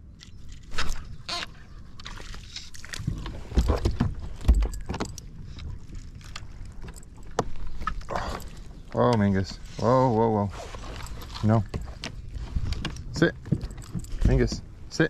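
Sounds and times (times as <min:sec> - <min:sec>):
knocks and rattles on plastic kayak: 0:03.0 - 0:05.3, 0:10.7 - 0:15.0
light metallic jingle: 0:13.6 - 0:14.6.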